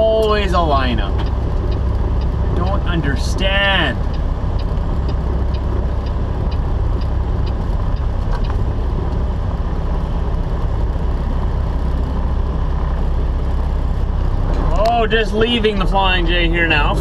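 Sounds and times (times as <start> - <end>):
light ticking: 0.0 - 17.0
truck diesel engine humming: 0.0 - 17.0.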